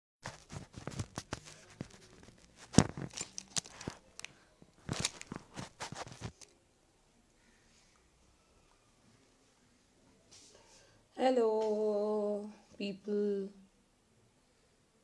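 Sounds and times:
handling clicks and knocks: 0.3s - 6.5s.

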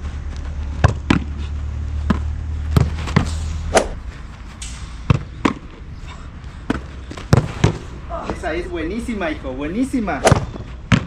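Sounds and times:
gloves slapping football: 0.3s - 1.4s, 2.0s - 4.0s, 6.7s - 8.4s, 10.2s - 11.0s.

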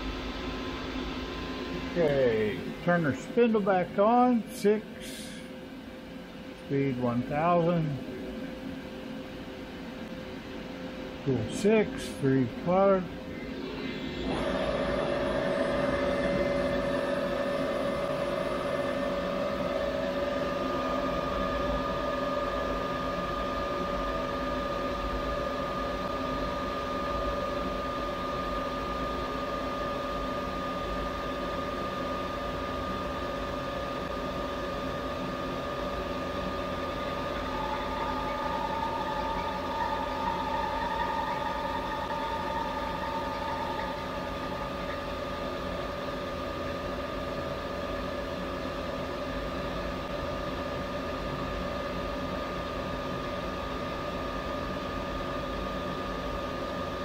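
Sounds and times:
milling machine spindle whine: 0.8s - 50.9s
higher cutting tone: 13.3s - 24.5s, 35.6s - 46.3s.

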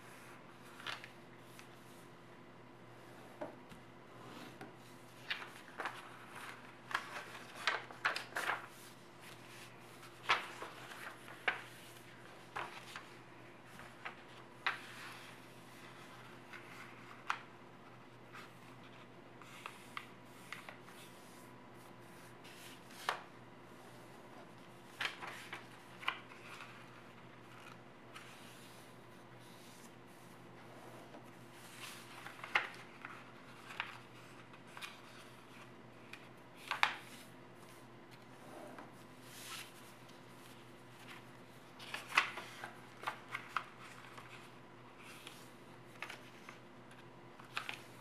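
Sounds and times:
paper rustling and crinkling: 0.2s - 1.8s, 4.5s - 17.5s, 24.6s - 30.3s, 31.0s - 48.0s.

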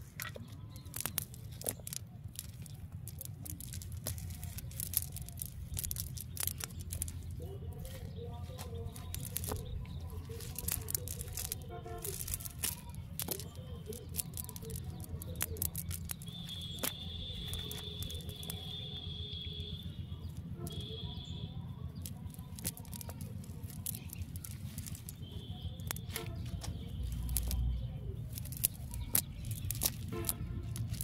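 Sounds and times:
fishing net clicks and rustles: 0.0s - 21.2s, 21.9s - 31.0s.

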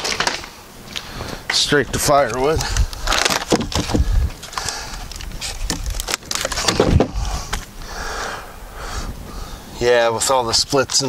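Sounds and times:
wooden planks knocking and scraping: 0.0s - 0.6s, 1.4s - 7.7s.

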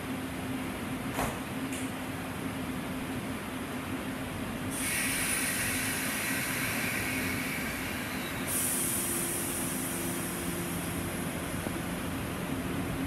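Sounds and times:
electric train low hum: 0.0s - 13.0s
high hiss: 4.7s - 11.2s.

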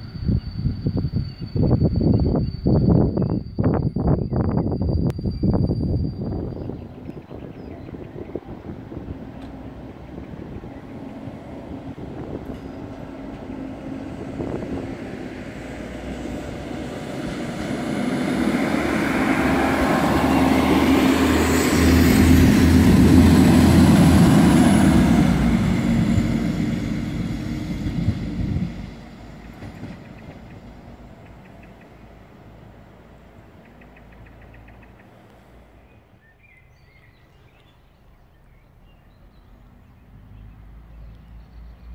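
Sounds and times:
diesel railcar passing: 0.0s - 41.9s.

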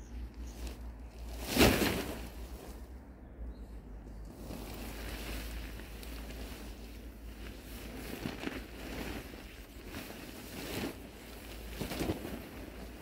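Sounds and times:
tent fabric rustling: 0.4s - 2.8s, 4.3s - 13.0s.

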